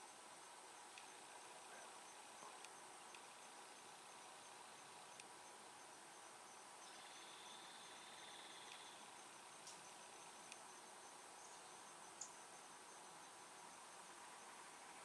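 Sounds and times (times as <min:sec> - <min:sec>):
crickets chirping: 0:00.0 - 0:15.0
insect buzzing: 0:00.0 - 0:15.0
faint clicks: 0:00.9 - 0:01.8, 0:02.4 - 0:03.3, 0:05.1 - 0:05.4, 0:08.5 - 0:09.0, 0:09.6 - 0:09.9, 0:10.5 - 0:10.7.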